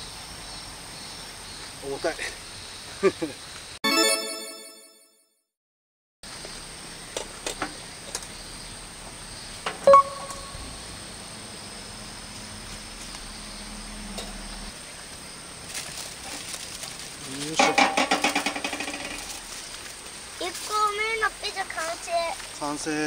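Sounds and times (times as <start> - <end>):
aluminium foil crinkling: 15.7 - 20.7.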